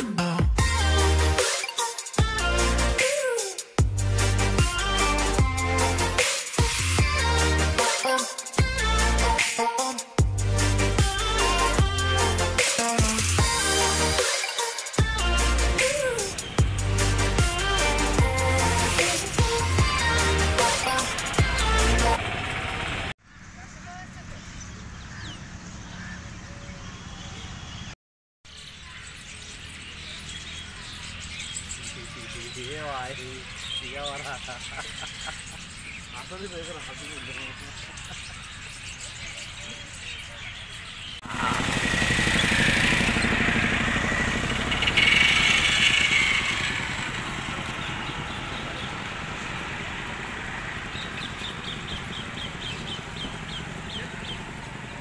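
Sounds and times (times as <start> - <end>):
traffic hum: 15.0 - 55.0
vehicle engine passing: 16.2 - 23.1, 41.2 - 55.0
bird chirping: 23.2 - 55.0.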